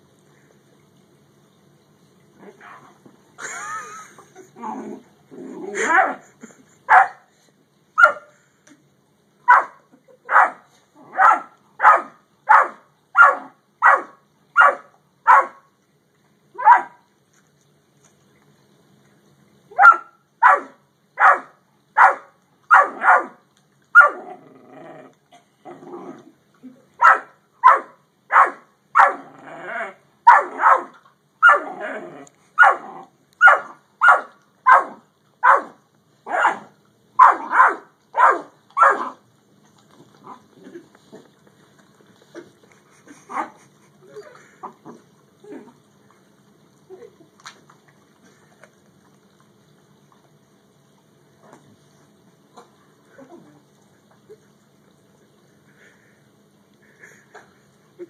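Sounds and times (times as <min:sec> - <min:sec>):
dog barking: 0:06.9 - 0:07.2, 0:08.0 - 0:08.3, 0:09.5 - 0:15.6, 0:16.6 - 0:17.0, 0:19.8 - 0:23.4, 0:27.0 - 0:29.2, 0:30.3 - 0:31.6, 0:32.6 - 0:32.8, 0:33.4 - 0:39.2.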